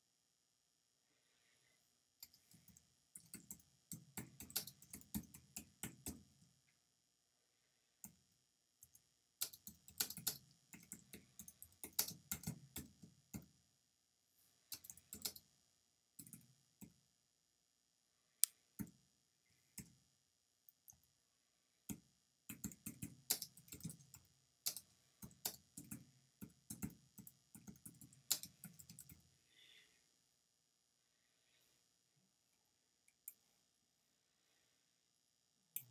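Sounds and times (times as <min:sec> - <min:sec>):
computer keyboard typing: 0:02.2 - 0:06.3, 0:09.4 - 0:13.5, 0:14.7 - 0:15.4, 0:22.5 - 0:29.2.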